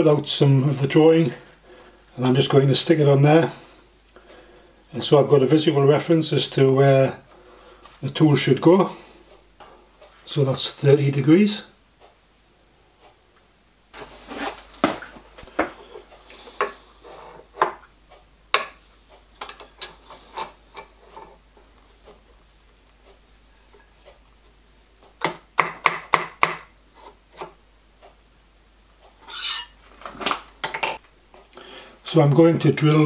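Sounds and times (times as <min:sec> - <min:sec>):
metal scrape: 0:29.2 - 0:29.8.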